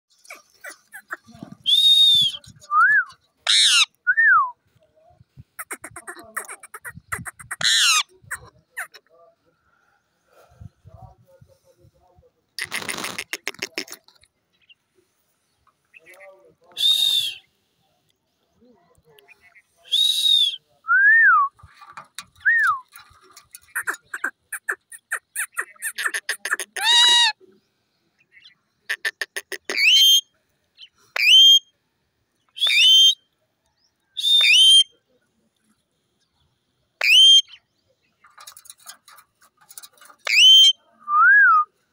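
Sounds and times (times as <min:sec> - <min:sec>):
parakeet chattering: 0:00.3 - 0:01.3, 0:05.6 - 0:09.0, 0:23.5 - 0:27.3
parakeet screeching: 0:03.5 - 0:03.9, 0:07.4 - 0:08.0
parakeets screeching and whistling: 0:06.8 - 0:08.1, 0:40.2 - 0:40.7
parakeet whistled calls: 0:40.3 - 0:40.7.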